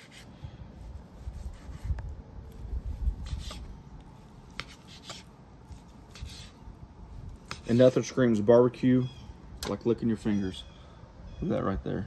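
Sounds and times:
knife slicing through meat: 1.1 - 2.0, 3.2 - 3.7, 4.5 - 6.6, 7.4 - 8.0.

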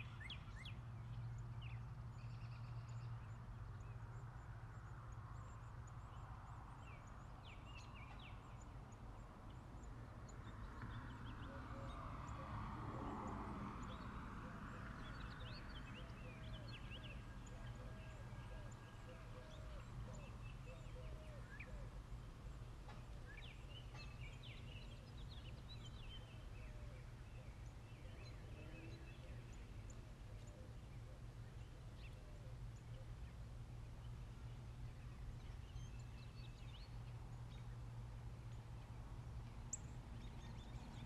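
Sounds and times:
birds chirping: 13.8 - 41.0.

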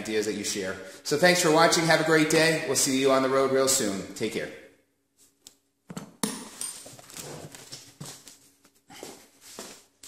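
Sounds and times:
handling knocks and rustling: 5.9 - 10.0.

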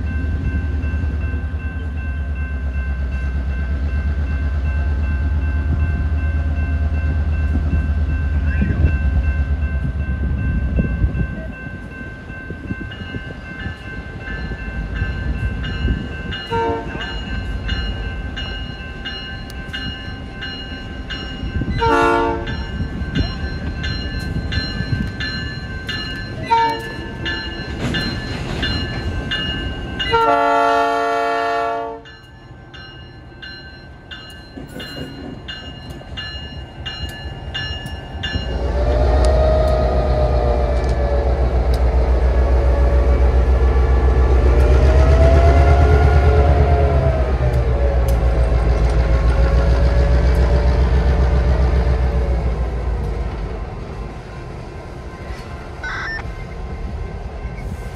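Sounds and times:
crossing bell ringing: 0.0 - 38.9, 55.8 - 56.2
diesel locomotive engine rumbling: 0.0 - 57.9
locomotive horn blasts: 16.5 - 17.0, 21.8 - 22.6, 26.4 - 27.0, 30.1 - 32.1.

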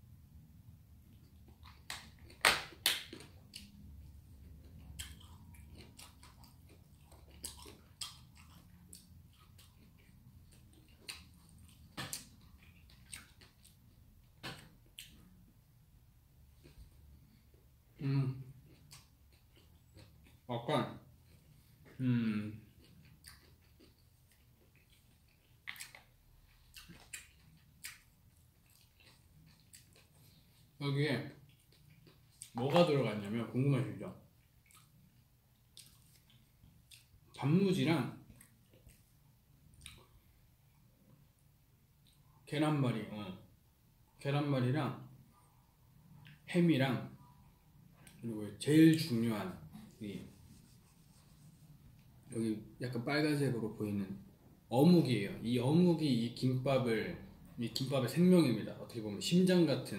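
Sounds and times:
person chewing food: 1.1 - 15.5, 16.6 - 20.5, 21.1 - 32.8, 34.2 - 37.4, 38.2 - 41.3, 45.3 - 46.5.

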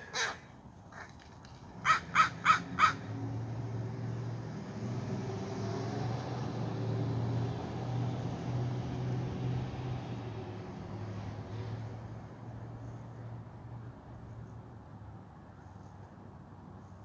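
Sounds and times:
crow cawing: 0.0 - 1.1, 1.8 - 3.0.

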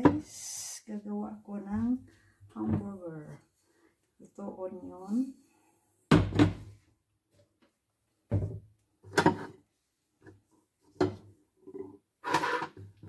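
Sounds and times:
rustling scrape: 12.2 - 12.8.

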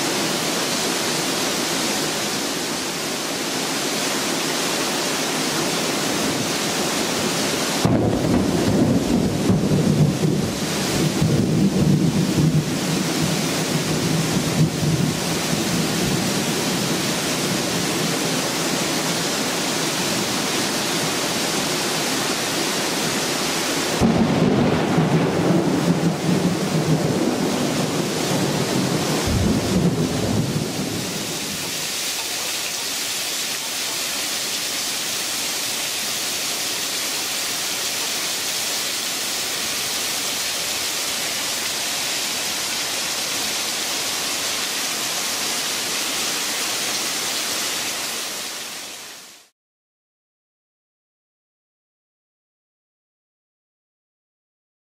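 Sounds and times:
heavy rain falling: 0.0 - 49.5
rumbling thunderclap: 7.8 - 15.2, 24.0 - 31.6.

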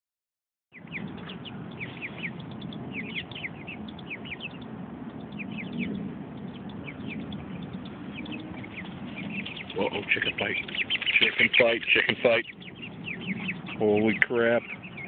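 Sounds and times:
birds chirping: 0.7 - 15.0
low background rumble: 0.8 - 15.0.

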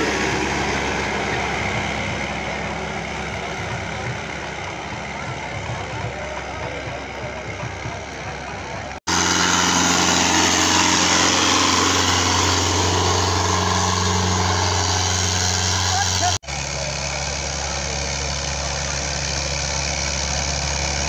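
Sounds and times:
engine low hum: 0.0 - 21.0
road noise: 0.0 - 21.0
tractor diesel engine running: 0.0 - 21.0.

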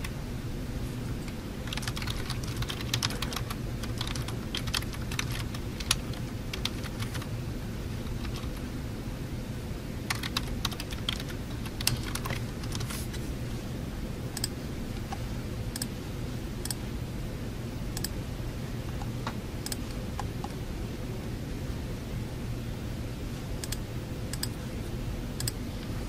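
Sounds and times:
low room hum: 0.0 - 26.0
typing on computer keyboard: 1.6 - 7.3, 8.1 - 8.6, 10.1 - 12.9.

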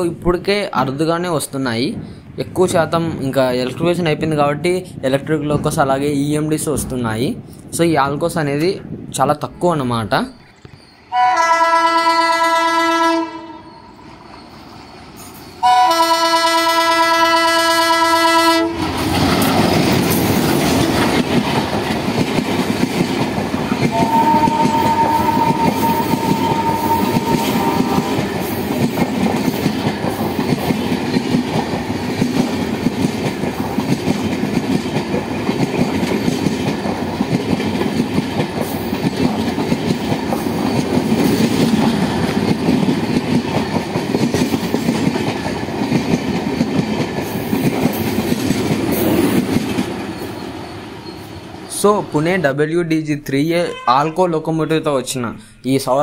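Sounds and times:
locomotive chime horn blasts: 11.1 - 13.9, 15.6 - 18.8, 23.9 - 28.2
train wheels clattering over rail joints: 18.8 - 24.9, 25.6 - 50.5.

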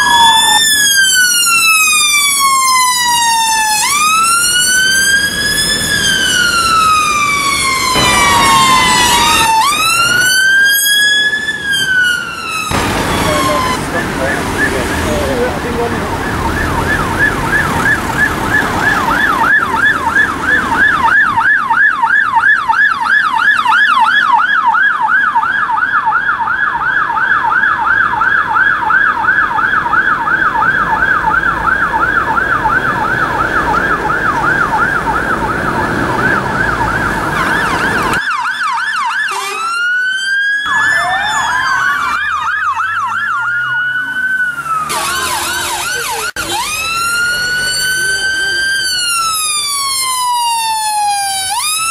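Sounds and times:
police siren fast yelp: 0.0 - 51.9
siren with slow rising sweeps: 0.0 - 51.9
traffic noise: 0.0 - 51.9.

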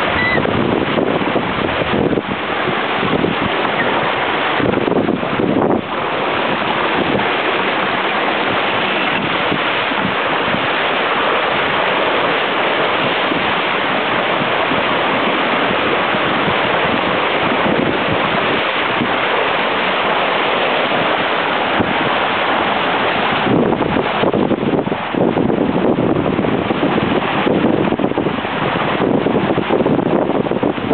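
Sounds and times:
water rushing along hull: 0.0 - 30.9
wind buffeting microphone: 0.0 - 30.9.

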